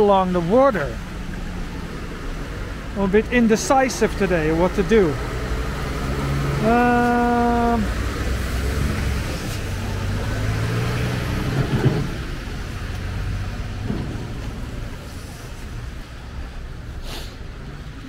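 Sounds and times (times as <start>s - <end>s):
passing cars rumbling: 0.0s - 18.0s.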